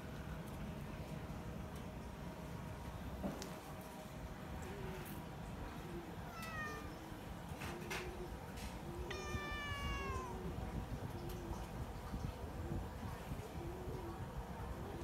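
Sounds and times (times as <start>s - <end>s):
cat meowing: 6.2s - 7.1s, 8.9s - 10.6s.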